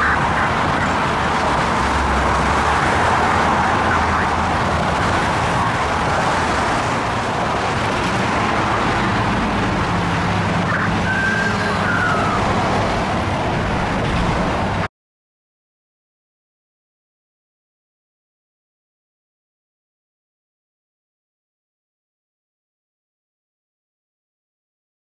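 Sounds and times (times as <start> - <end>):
traffic noise: 0.0 - 14.9
emergency siren wailing: 9.0 - 13.3.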